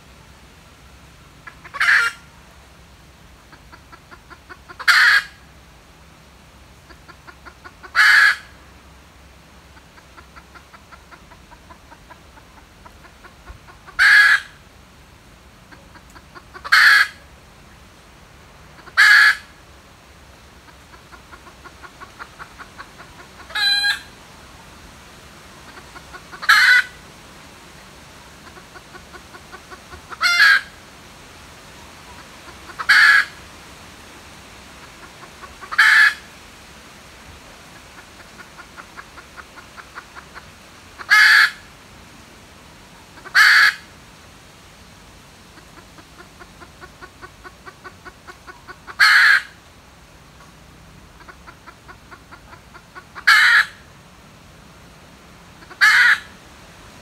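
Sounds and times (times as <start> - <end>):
hen squawking: 1.4 - 2.3, 20.7 - 24.1, 25.7 - 27.0, 28.4 - 30.8, 32.1 - 33.4, 34.9 - 36.3, 38.0 - 41.6, 43.2 - 43.9, 45.6 - 49.5, 51.2 - 53.8, 55.6 - 56.4
hen clucking: 1.4 - 2.4, 3.4 - 5.5, 6.8 - 8.6, 9.7 - 14.6, 15.6 - 17.3, 18.6 - 19.6, 20.6 - 24.2, 25.5 - 27.0, 28.2 - 30.8, 31.9 - 33.5, 34.8 - 36.3, 37.7 - 41.7, 42.9 - 43.9, 45.5 - 49.6, 51.1 - 53.9, 55.6 - 56.4.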